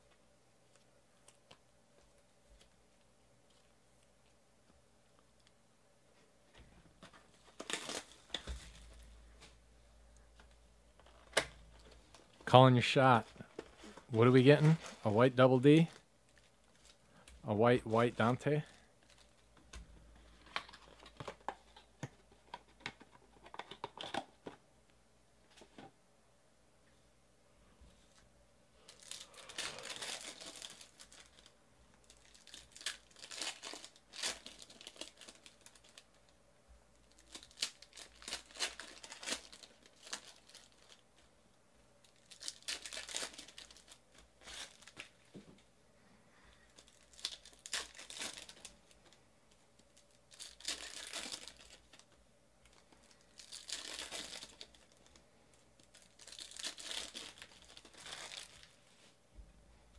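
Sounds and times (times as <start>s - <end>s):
card pack wrappers tearing and crinkling: 7.0s - 9.5s, 11.0s - 17.0s, 20.3s - 21.8s, 28.8s - 36.3s, 37.0s - 41.3s, 42.0s - 45.2s, 46.7s - 49.2s, 49.8s - 55.2s, 55.8s - 58.8s.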